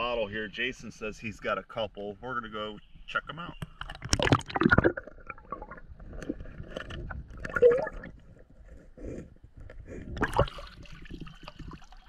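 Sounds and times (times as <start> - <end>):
hand scraping stones underwater: 3.5 - 12.0
underwater river gurgling: 3.8 - 8.4, 9.0 - 12.0.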